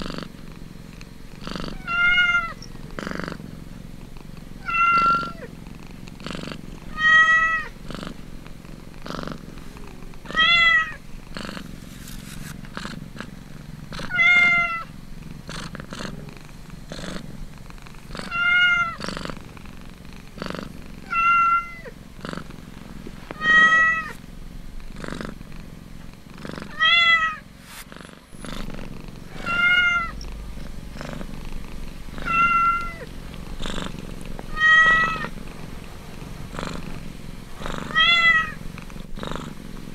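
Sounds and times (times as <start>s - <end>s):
cat purring: 0.0s - 39.9s
kittens mewing: 1.6s - 2.7s, 4.0s - 5.6s, 14.0s - 14.9s, 18.0s - 19.1s, 21.0s - 22.0s, 23.4s - 24.2s, 29.2s - 35.5s, 37.7s - 39.0s.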